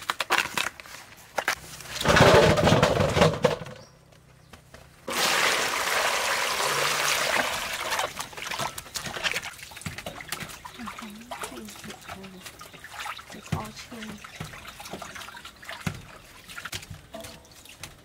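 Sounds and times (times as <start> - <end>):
water pouring: 5.1 - 18.0
water splashing: 5.1 - 18.0.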